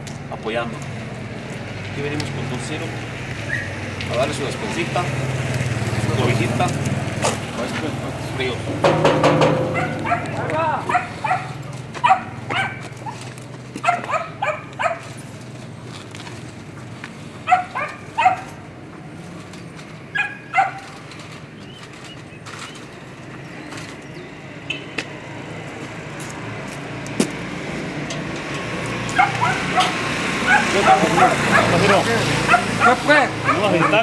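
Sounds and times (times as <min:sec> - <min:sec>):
dog barking: 0:09.7 - 0:13.2, 0:13.8 - 0:15.0, 0:17.4 - 0:18.5, 0:20.2 - 0:20.8, 0:29.2 - 0:34.0.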